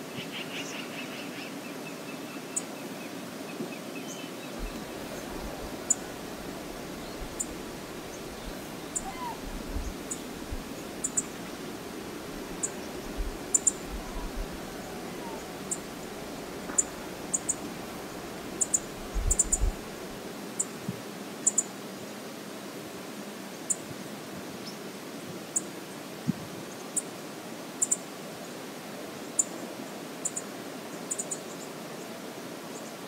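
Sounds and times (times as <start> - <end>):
wind and water hiss: 0.0 - 33.0
wind rumbling on microphone: 4.5 - 21.0.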